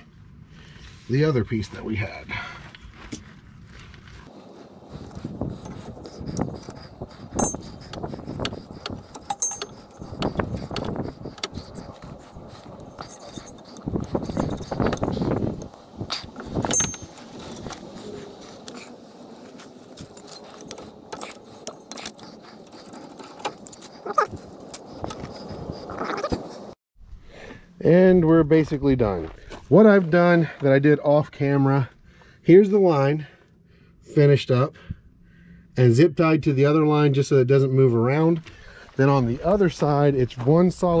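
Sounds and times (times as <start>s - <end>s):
sharp clicks and scrapes: 5.0s - 26.8s
metal parts and tools clinking: 7.4s - 7.7s, 9.1s - 10.1s, 12.8s - 15.2s, 16.5s - 17.9s, 19.9s - 24.2s
short metallic rings: 7.4s - 7.7s, 9.3s - 10.0s, 16.6s - 17.6s.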